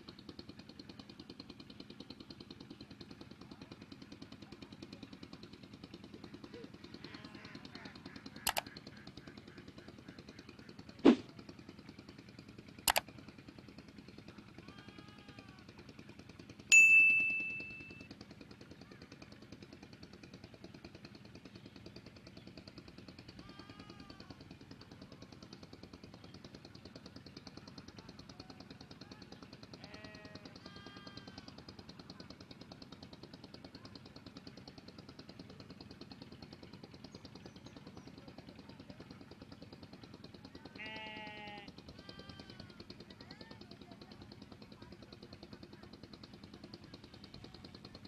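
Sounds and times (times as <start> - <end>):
sharp mouse clicks: 8.5 - 8.7
bell ding: 16.7 - 18.0.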